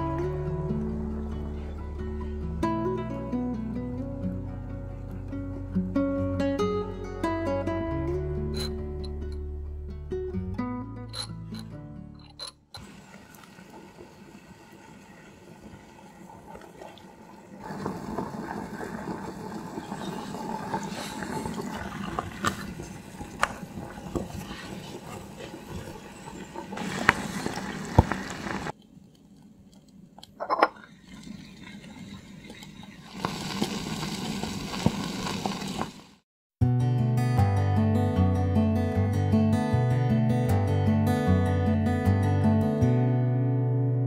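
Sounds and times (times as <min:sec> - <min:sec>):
stew bubbling in a pot: 0:12.8 - 0:28.8, 0:30.7 - 0:36.2.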